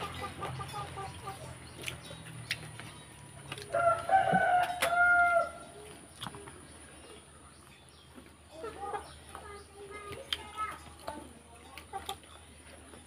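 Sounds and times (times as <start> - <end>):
chicken clucks: 0.0 - 13.0
rooster crowing: 3.7 - 5.7.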